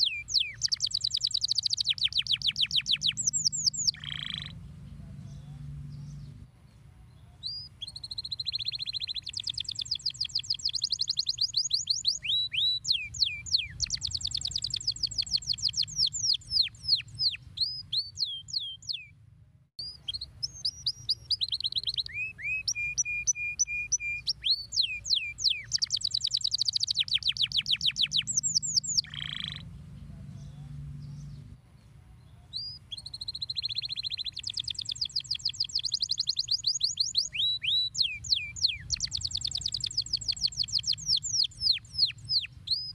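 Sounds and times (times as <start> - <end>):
canary singing trills: 0.0 - 6.4, 7.1 - 19.2, 19.8 - 31.6, 32.2 - 42.9.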